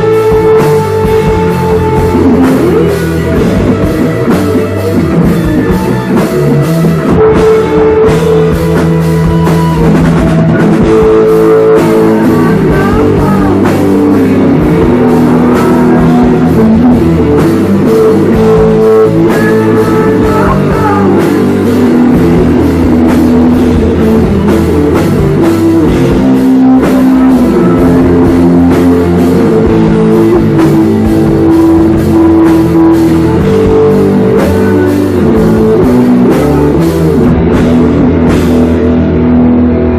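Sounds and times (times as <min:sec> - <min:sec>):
live rock band playing: 0:00.0 - 0:39.9
person singing into microphone: 0:10.8 - 0:22.4, 0:26.2 - 0:36.7.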